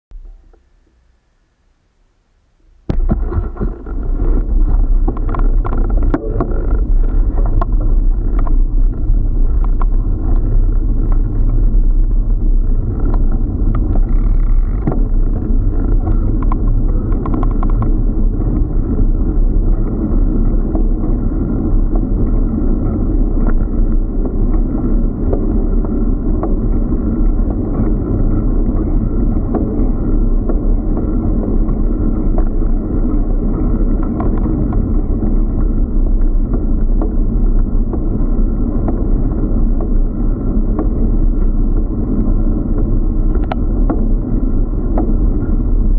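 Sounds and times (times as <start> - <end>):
clicks and knocks: 2.9 - 8.7
wind buffeting microphone: 2.9 - 45.9.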